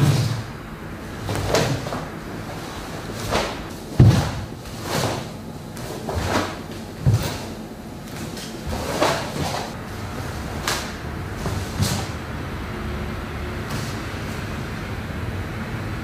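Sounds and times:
heavy thuds: 0.0 - 12.2.

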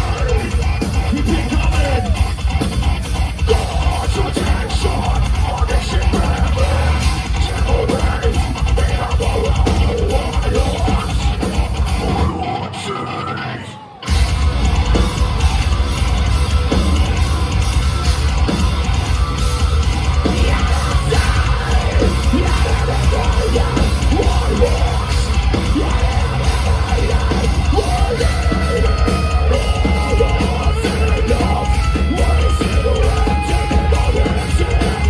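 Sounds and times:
screamed vocals: 0.0 - 2.4, 11.9 - 14.2, 20.2 - 35.0
metal band playing live: 0.0 - 35.0.

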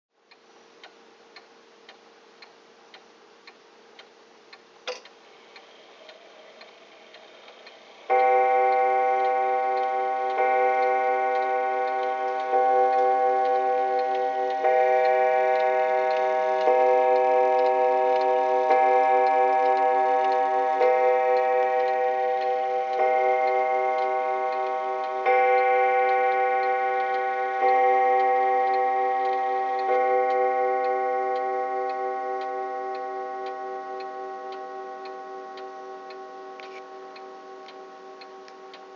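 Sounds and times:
clock ticking softly: 0.2 - 38.9
sharp click: 4.8 - 5.2
deep resonant clock strikes: 6.1 - 38.9.

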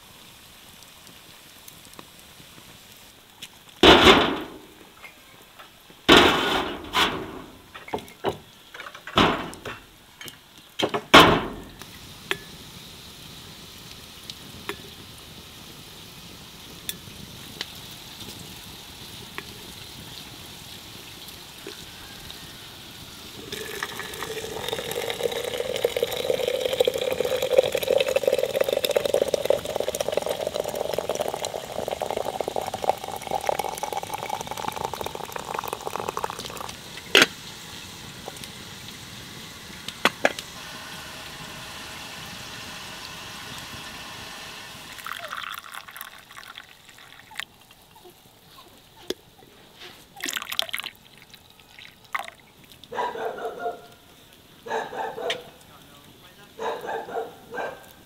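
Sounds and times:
water pouring into vessel: 23.3 - 37.2, 44.6 - 48.1, 50.1 - 52.9.

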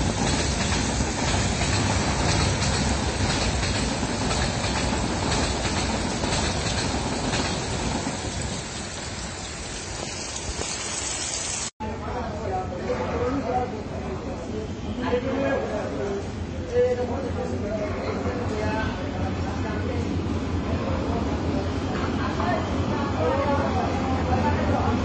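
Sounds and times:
passenger train running past: 0.0 - 10.6
heavy rain hissing: 0.0 - 11.8.

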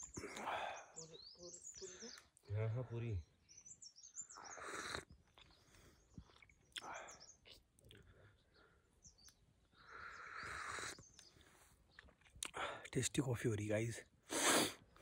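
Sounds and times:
small birds chirping: 0.0 - 15.0
man sipping hot coffee: 4.5 - 8.1, 9.9 - 12.7, 14.3 - 15.0.

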